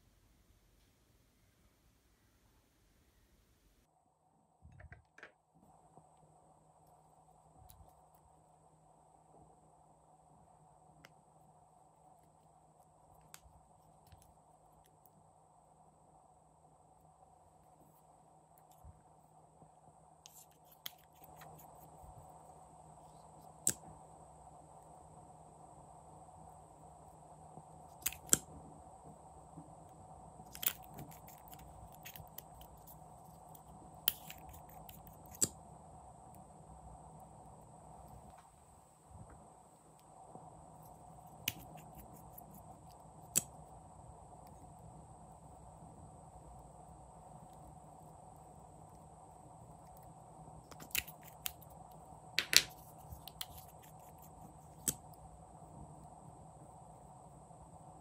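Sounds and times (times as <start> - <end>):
faint steady hum: 0.0 - 58.0
plastic caps clicking: 52.4 - 52.7
plastic pen cap clicks: 52.4 - 53.6.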